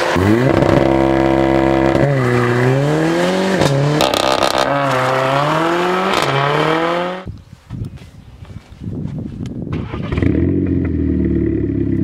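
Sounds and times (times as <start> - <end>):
exhaust crackle: 0.0 - 6.9
car engine accelerating hard: 0.0 - 7.3.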